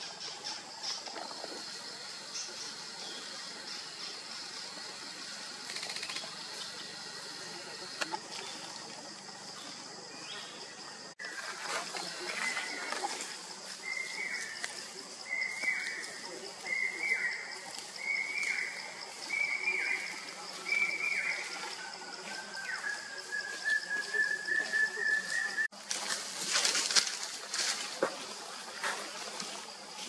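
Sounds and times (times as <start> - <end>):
bird calling: 12.0 - 25.7.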